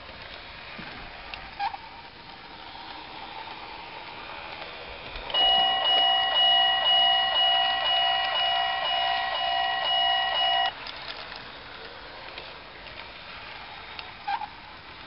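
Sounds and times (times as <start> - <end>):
electronic warning bell ringing: 5.3 - 10.7.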